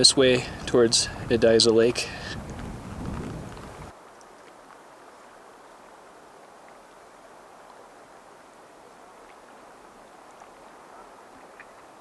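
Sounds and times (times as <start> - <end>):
faint ticks: 10.3 - 11.9.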